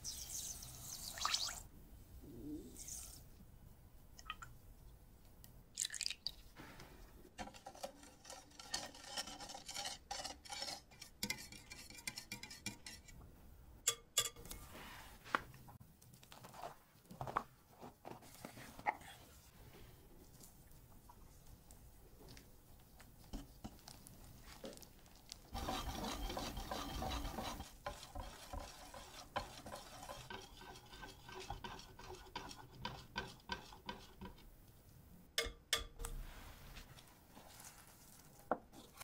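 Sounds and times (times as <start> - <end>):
whisk beating batter: 7.4 - 13.0, 25.5 - 34.4.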